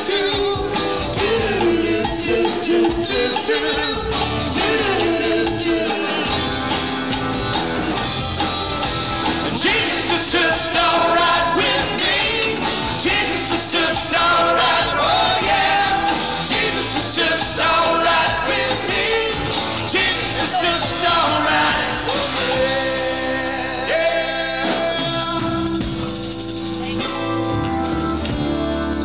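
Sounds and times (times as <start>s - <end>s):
lead singer with backing vocals: 0.0s - 6.4s, 9.6s - 25.8s
live rock band playing: 0.0s - 29.0s.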